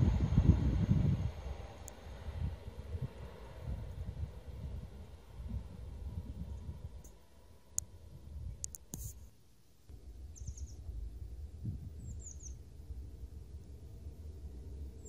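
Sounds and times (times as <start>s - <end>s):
wind rumbling on microphone: 0.0s - 9.2s, 9.9s - 15.0s
sharp clicks: 8.6s - 9.2s
high falling bird chirps: 10.3s - 10.8s, 12.0s - 12.7s.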